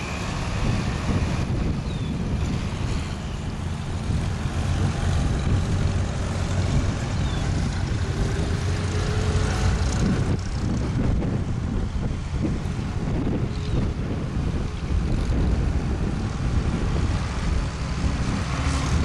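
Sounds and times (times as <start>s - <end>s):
tractor engines driving past: 0.0s - 19.0s
wind buffeting microphone: 0.0s - 19.0s.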